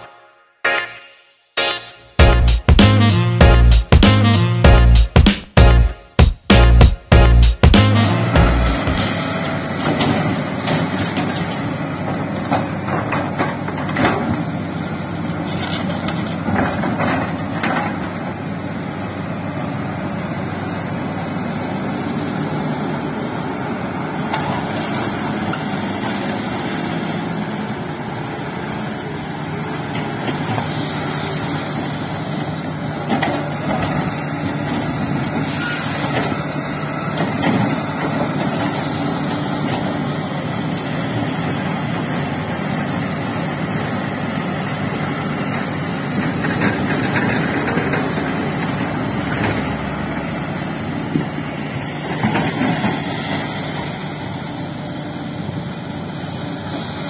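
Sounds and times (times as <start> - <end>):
heavy diesel engines running: 2.2 - 5.9, 6.5 - 57.0
air brakes hissing: 35.4 - 36.5.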